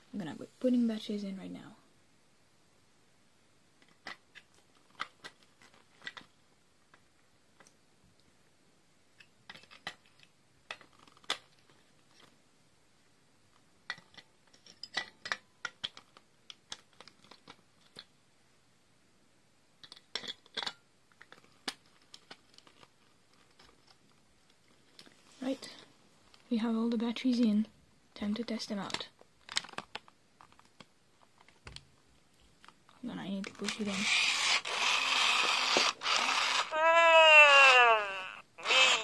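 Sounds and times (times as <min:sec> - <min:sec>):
small plastic clicks and scrapes: 0:03.8 - 0:06.3, 0:09.2 - 0:12.3, 0:13.9 - 0:18.1, 0:19.8 - 0:24.1, 0:28.8 - 0:31.8.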